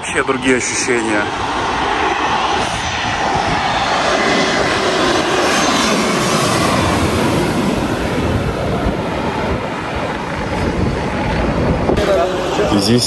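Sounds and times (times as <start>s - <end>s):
jet airliner passing overhead: 0.0s - 13.0s.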